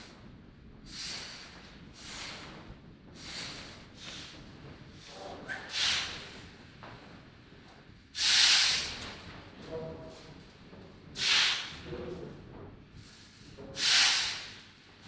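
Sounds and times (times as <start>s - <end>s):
bursts of hissing noise: 13.8s - 14.6s.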